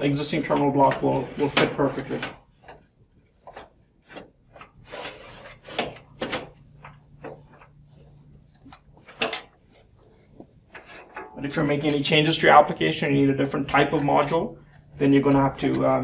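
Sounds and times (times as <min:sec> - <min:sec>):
sharp clicks and knocks: 0:10.7 - 0:12.1.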